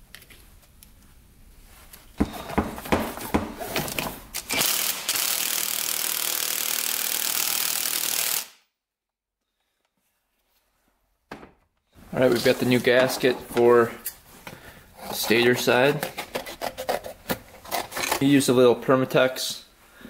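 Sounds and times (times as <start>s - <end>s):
impact wrench hammering: 2.2s - 3.6s.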